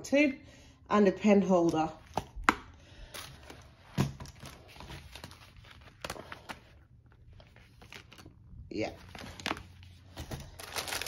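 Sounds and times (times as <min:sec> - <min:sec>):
plastic wrapping rustling: 0:07.4 - 0:11.0.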